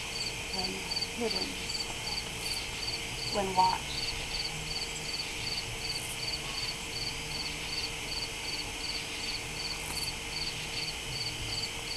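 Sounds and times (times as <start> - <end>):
crickets chirping: 0.0 - 11.9
high insect hiss: 0.0 - 11.9.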